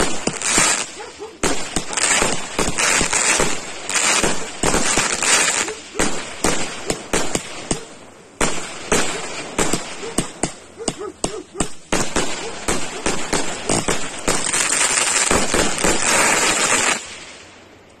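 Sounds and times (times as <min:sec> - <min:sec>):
fireworks crackle: 0:00.0 - 0:10.8, 0:11.6 - 0:17.6
fireworks shots and bursts: 0:00.0 - 0:17.5.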